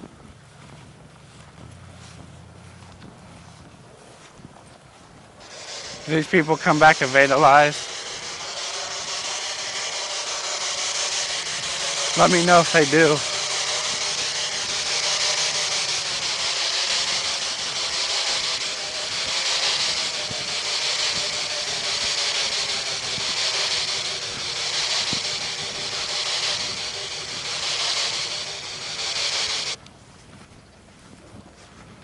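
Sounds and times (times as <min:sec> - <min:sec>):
footsteps on grass: 0:00.6 - 0:05.1
electronic static hiss: 0:05.4 - 0:29.8.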